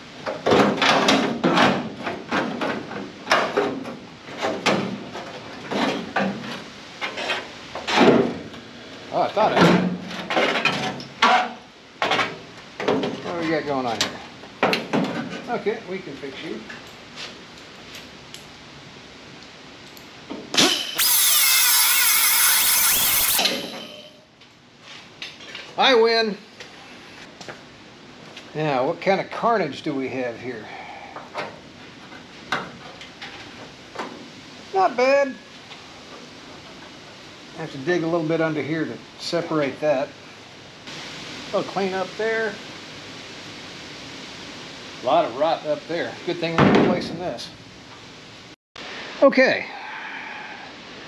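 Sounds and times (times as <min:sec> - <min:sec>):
power tool cutting sheet metal: 0:20.6 - 0:24.1.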